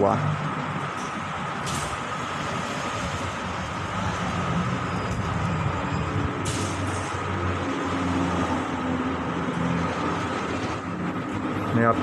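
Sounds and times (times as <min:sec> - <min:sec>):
large vehicle engine hum: 0:00.0 - 0:12.0
road traffic noise: 0:00.0 - 0:12.0.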